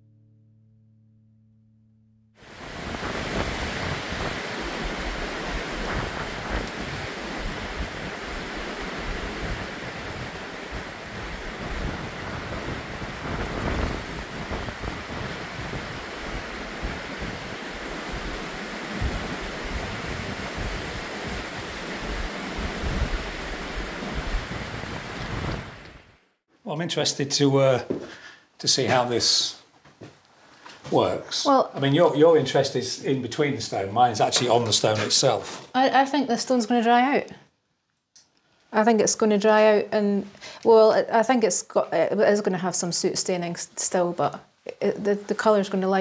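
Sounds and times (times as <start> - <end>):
wind blowing on microphone: 2.4 - 26.1.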